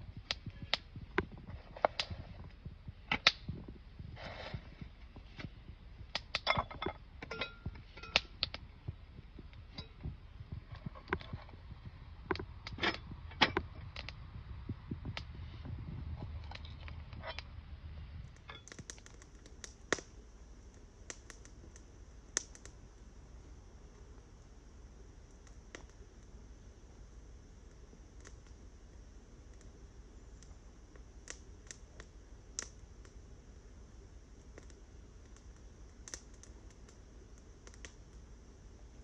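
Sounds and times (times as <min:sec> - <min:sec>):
gear clinking against metal pot: 0:06.5 - 0:08.2.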